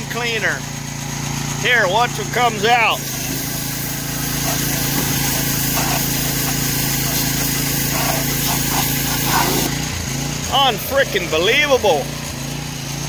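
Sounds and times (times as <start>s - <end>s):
small engine humming: 0.6s - 13.0s
pressure washer spray hissing: 2.8s - 9.9s.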